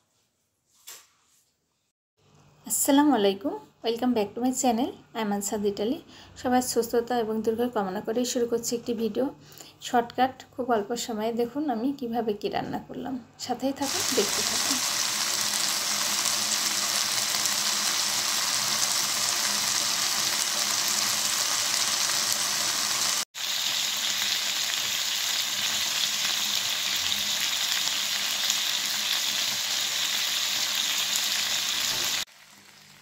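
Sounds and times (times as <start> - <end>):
chicken sizzling in hot oil: 13.8 - 33.0.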